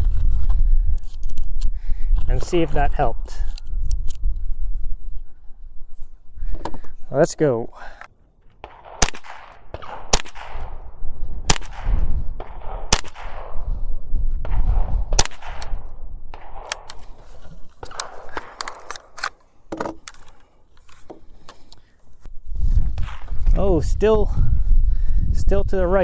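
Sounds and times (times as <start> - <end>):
rifle shots: 8.6 - 13.7, 14.4 - 17.2, 17.8 - 19.4.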